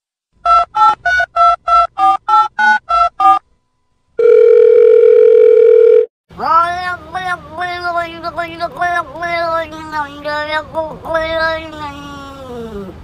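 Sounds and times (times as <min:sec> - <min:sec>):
steady phone tone: 0:04.2 - 0:06.1
high-pitched voice: 0:06.4 - 0:13.0.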